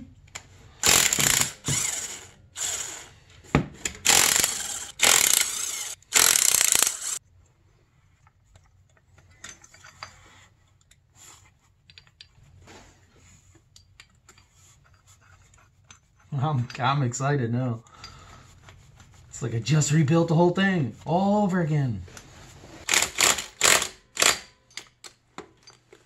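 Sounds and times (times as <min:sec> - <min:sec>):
impact driver bursts: 0:00.8 - 0:03.1, 0:04.0 - 0:07.2, 0:22.9 - 0:24.5.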